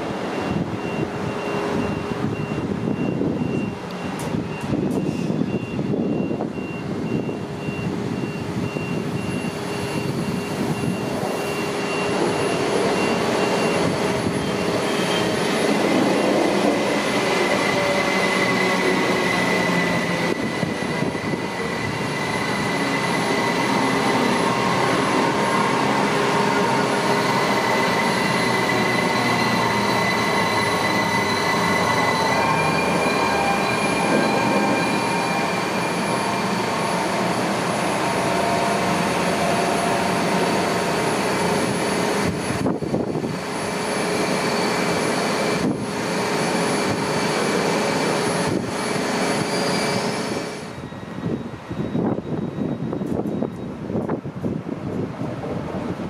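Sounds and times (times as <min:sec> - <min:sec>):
train rolling on rails: 0:00.0 - 0:56.0
high whining tones: 0:09.3 - 0:53.7.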